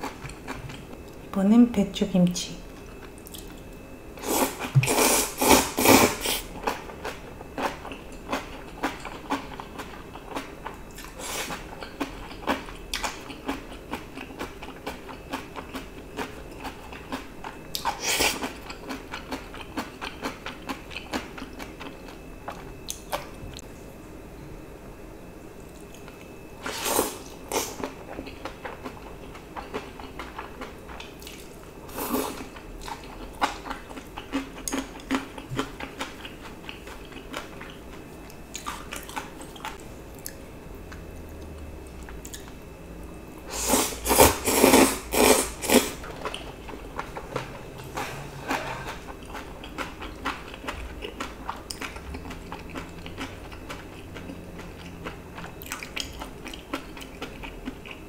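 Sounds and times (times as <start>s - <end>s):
person chewing and slurping noodles: 4.2s - 22.7s, 26.6s - 37.8s, 43.5s - 58.0s.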